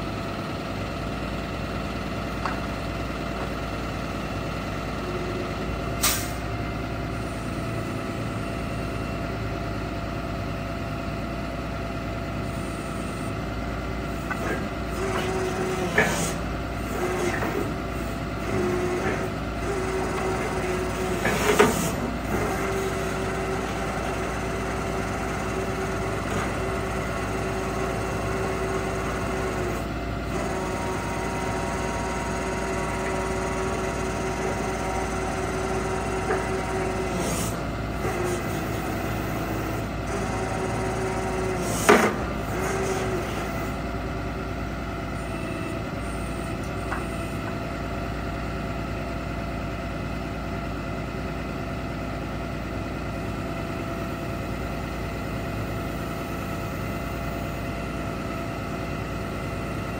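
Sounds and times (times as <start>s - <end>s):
diesel truck engine running: 0.0s - 59.9s
hydraulic whine: 14.1s - 43.8s, 45.0s - 47.9s.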